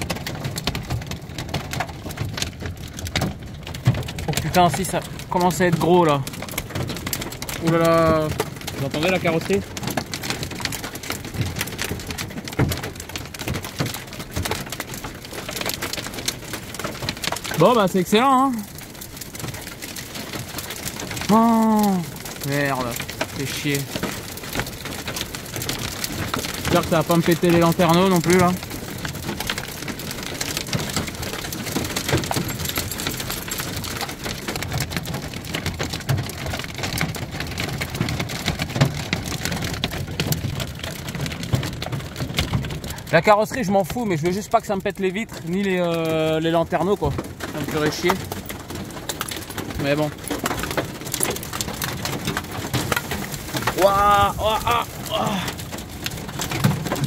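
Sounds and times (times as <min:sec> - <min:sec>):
hail pelting metal roof: 0:00.0 - 0:57.0
rain hiss: 0:19.4 - 0:33.2, 0:51.8 - 0:57.0
hailstone thuds: 0:49.6 - 0:57.0.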